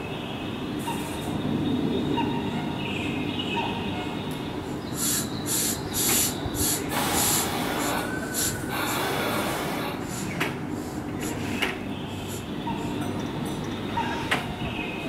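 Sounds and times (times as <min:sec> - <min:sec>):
electric train humming: 0:03.6 - 0:15.0
short air hisses: 0:04.9 - 0:12.5.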